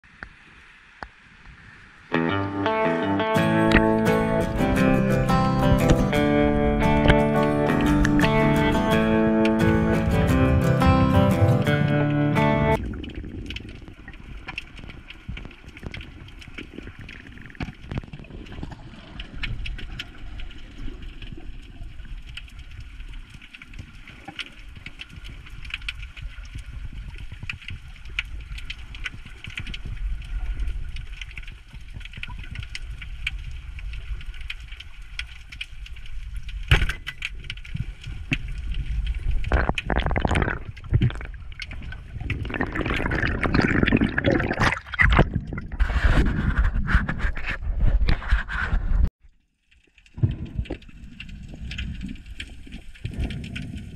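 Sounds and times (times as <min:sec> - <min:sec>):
underwater rumble of moving water: 0:04.4 - 0:49.0, 0:49.7 - 0:53.9
sharp clicks and crackle: 0:05.6 - 0:09.7, 0:12.8 - 0:53.9
rushing water surges: 0:38.9 - 0:46.1.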